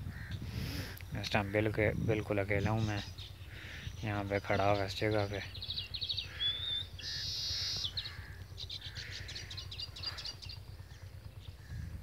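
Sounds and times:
small birds chirping: 0.1s - 12.0s
buzzy bird trill: 1.4s - 11.8s
wavering bird whistle: 5.6s - 8.1s.

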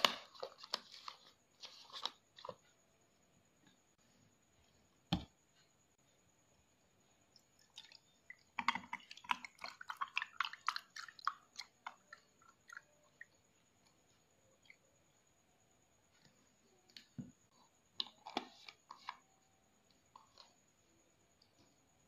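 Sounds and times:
milk pouring over ice: 7.4s - 13.2s.

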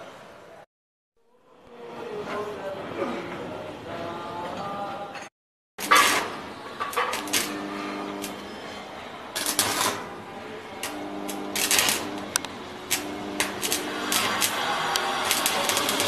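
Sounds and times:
welding arc crackling: 5.8s - 16.0s.

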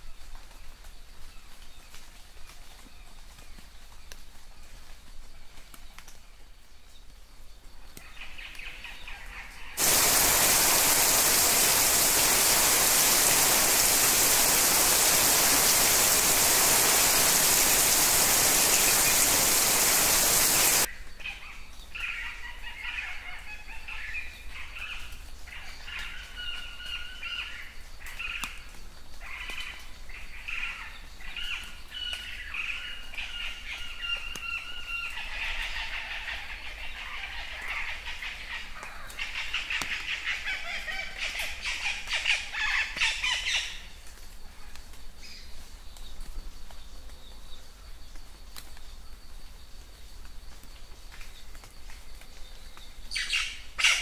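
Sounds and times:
birds chirping and whistling: 9.8s - 20.9s
heavy rain pouring: 9.8s - 20.9s.

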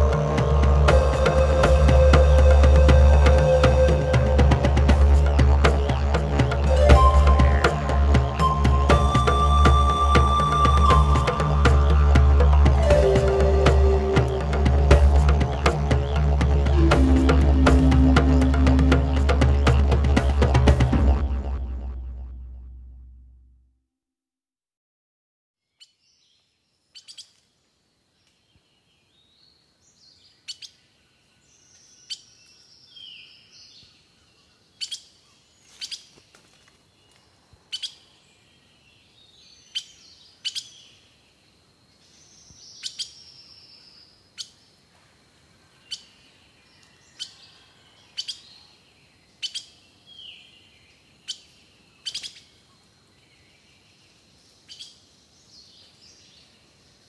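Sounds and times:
bird chip notes: 0.0s - 22.9s
falling whistled bird phrases: 6.7s - 14.6s.

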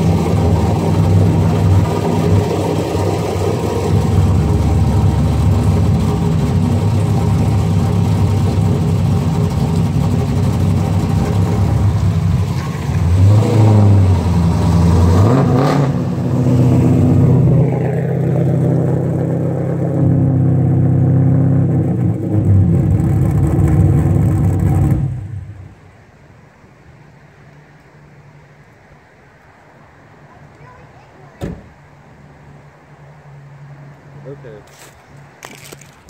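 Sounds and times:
car engine revving and idling: 0.0s - 25.9s.

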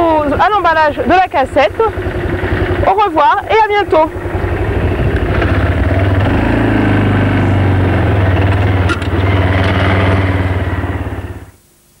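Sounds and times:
quad bike engine running: 0.0s - 11.6s.

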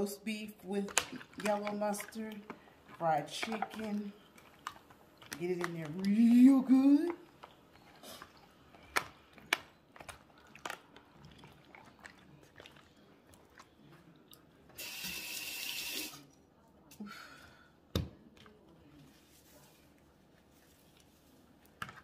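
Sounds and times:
wet squelching of kneaded meat: 0.5s - 14.7s.

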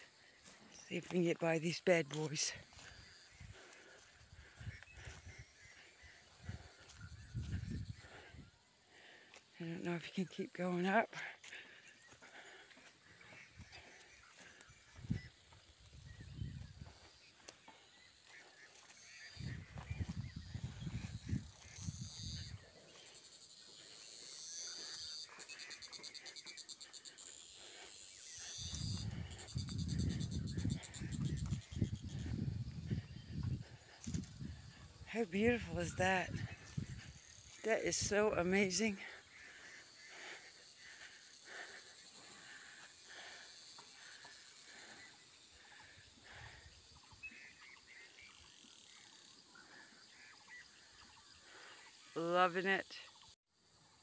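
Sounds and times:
insects buzzing and trilling: 0.0s - 54.0s
high-pitched insect buzz: 18.8s - 34.8s.

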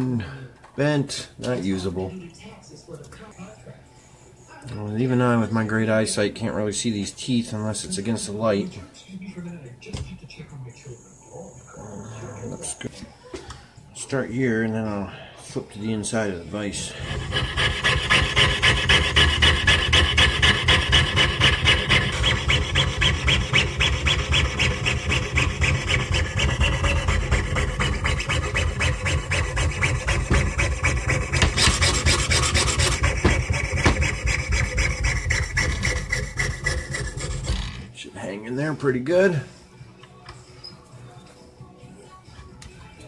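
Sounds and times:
saw blade rasping on metal: 16.9s - 37.9s.

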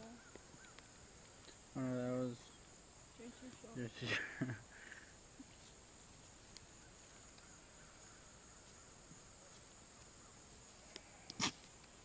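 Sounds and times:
insects droning: 0.0s - 12.0s
soft ticks: 0.3s - 1.6s, 6.5s - 6.7s, 7.3s - 7.5s.

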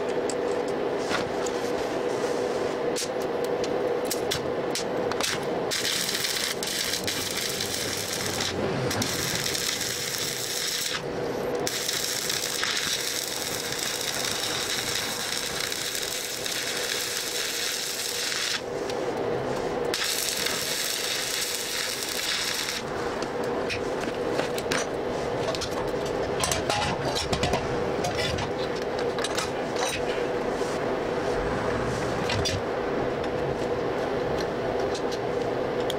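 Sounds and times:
steady hum: 0.0s - 35.9s
welding arc crackling: 3.0s - 26.5s.

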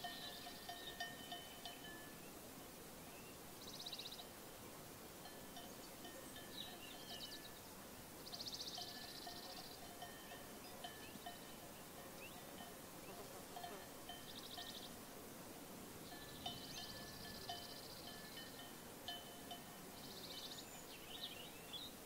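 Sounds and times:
sheep bells tinkling: 0.0s - 2.2s, 5.2s - 7.6s, 8.3s - 15.0s, 16.0s - 21.5s.

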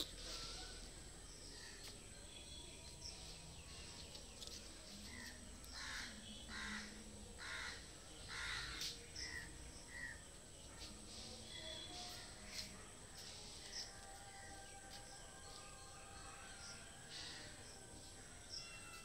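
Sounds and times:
small birds chirping: 0.0s - 19.0s
crow cawing: 5.7s - 8.8s.

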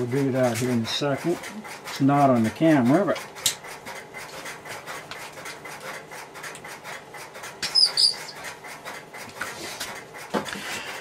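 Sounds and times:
short high squeaks: 7.6s - 8.4s.

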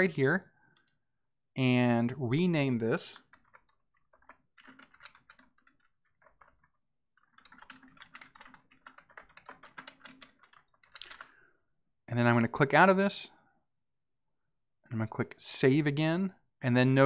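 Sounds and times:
faint keyboard typing: 2.8s - 11.5s.

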